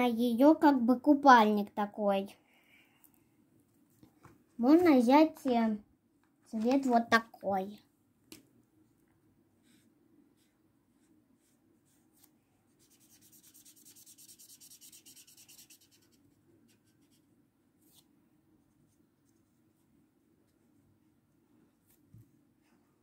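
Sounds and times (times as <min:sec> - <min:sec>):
marker scratching on paper: 0:09.6 - 0:17.2.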